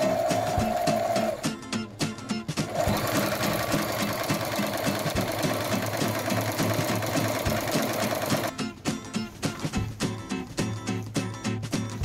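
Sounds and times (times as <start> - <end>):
background music: 0.0 - 12.0
sewing machine stitching: 2.6 - 8.5.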